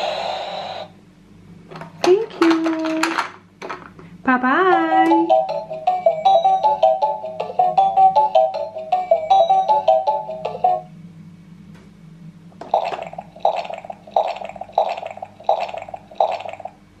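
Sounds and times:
toy beeping melody: 0:05.1 - 0:10.9.

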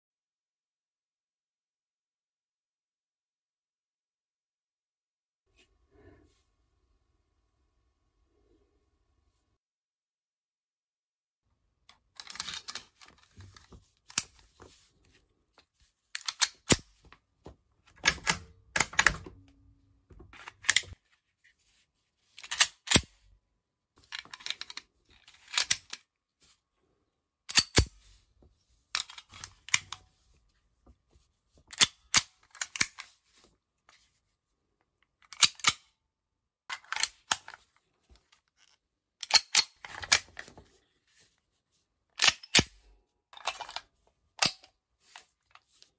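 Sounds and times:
metallic clicks of pistols handled: 0:16.1 - 0:16.9, 0:22.4 - 0:23.1, 0:24.1 - 0:26.0, 0:27.5 - 0:27.9, 0:35.2 - 0:35.9, 0:38.6 - 0:40.4, 0:42.2 - 0:42.8.

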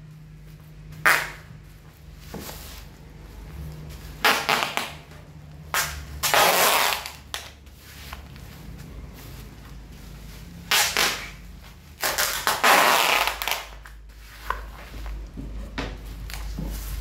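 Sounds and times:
packing tape ripping off roll: 0:01.0 - 0:01.5, 0:04.2 - 0:05.1, 0:05.7 - 0:07.6, 0:10.7 - 0:11.4, 0:12.0 - 0:13.9.

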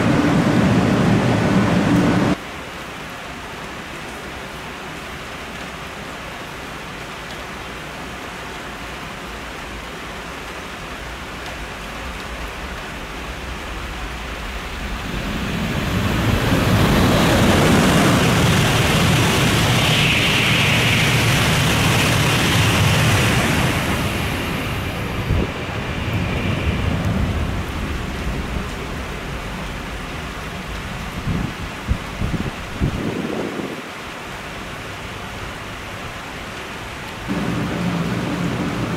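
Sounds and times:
train passing at speed: 0:00.0 - 0:02.4, 0:12.5 - 0:30.9, 0:37.3 - 0:38.9
steady rain: 0:00.0 - 0:38.9.

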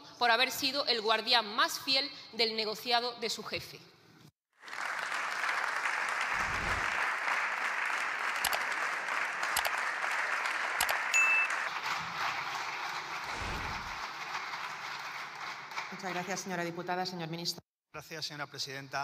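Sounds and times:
many hands clapping: 0:04.6 - 0:16.7
short high beep: 0:11.2 - 0:11.6.

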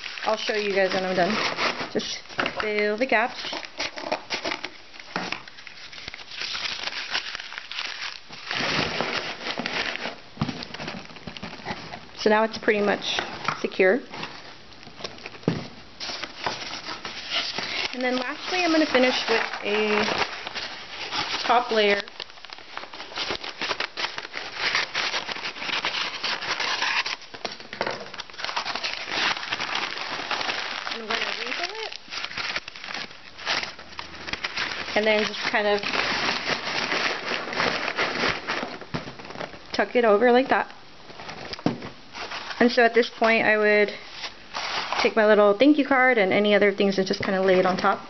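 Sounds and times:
paper crumpling and rustling: 0:00.0 - 0:39.8, 0:41.1 - 0:45.5.

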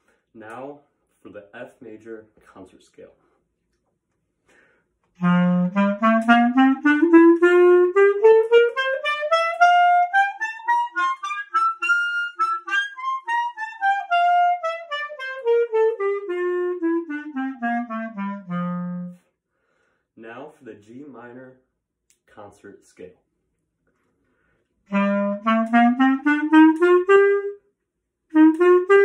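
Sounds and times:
clarinet playing a scale: 0:05.2 - 0:19.3, 0:24.9 - 0:27.7, 0:28.3 - 0:29.0.

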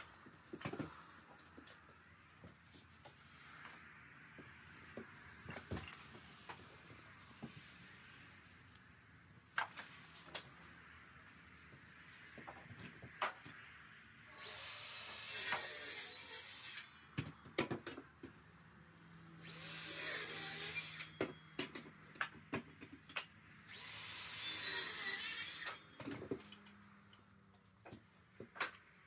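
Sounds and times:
power saw cutting wood: 0:14.3 - 0:17.0, 0:19.3 - 0:21.2, 0:23.7 - 0:26.7.

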